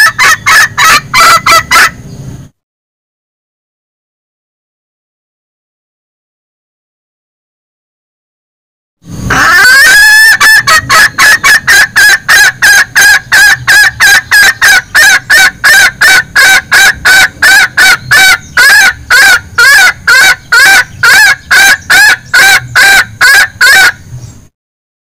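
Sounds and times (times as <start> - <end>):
junglefowl clucking call: 0.0 - 2.0, 9.3 - 24.0.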